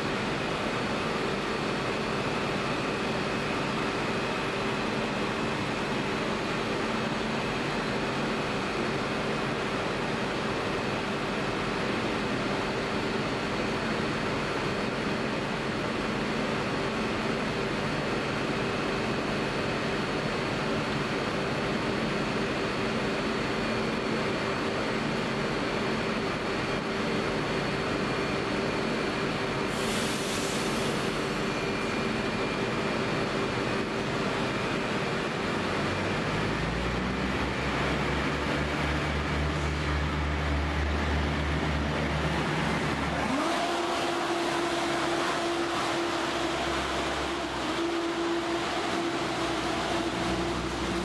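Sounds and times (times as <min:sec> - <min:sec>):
diesel train idling: 0:00.0 - 0:51.0
rising train whine: 0:00.0 - 0:51.0
train engines revving: 0:29.1 - 0:51.0
air hiss: 0:29.7 - 0:31.2.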